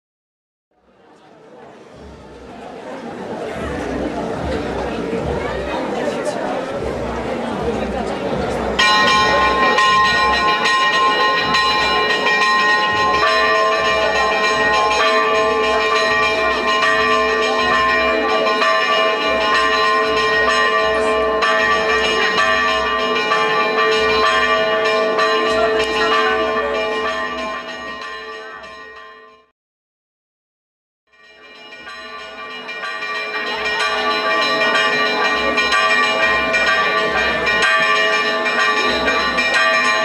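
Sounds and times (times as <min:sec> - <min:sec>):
church bells ringing: 0:07.6 - 0:29.5, 0:31.1 - 0:40.0.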